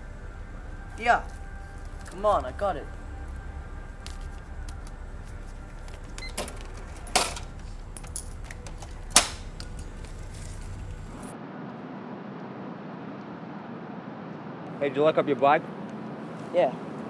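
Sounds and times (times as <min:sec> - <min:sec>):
steady low hum: 0:00.0 - 0:14.8
cash register clicks and clacks: 0:06.2 - 0:09.5.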